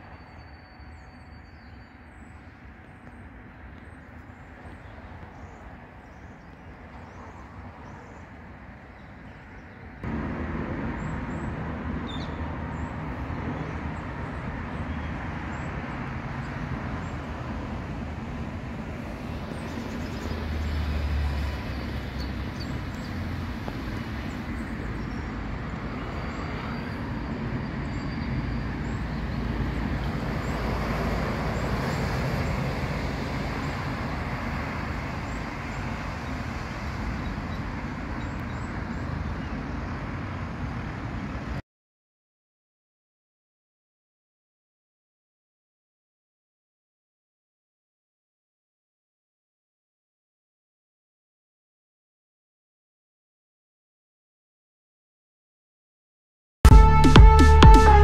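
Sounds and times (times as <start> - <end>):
distant road traffic rumble: 0.0 - 41.6.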